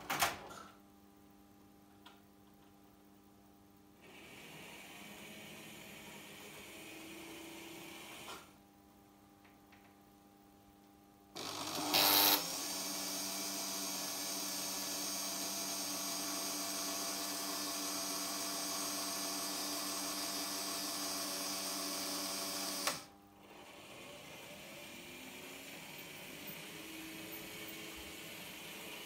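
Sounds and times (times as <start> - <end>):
electric motor whirring: 11.4 - 23.1.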